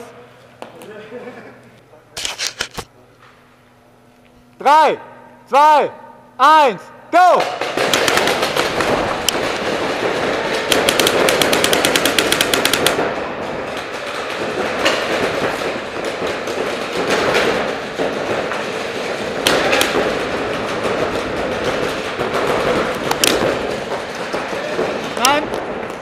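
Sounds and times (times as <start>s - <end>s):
paintball markers firing: 7.4s - 13.1s, 19.4s - 26.0s.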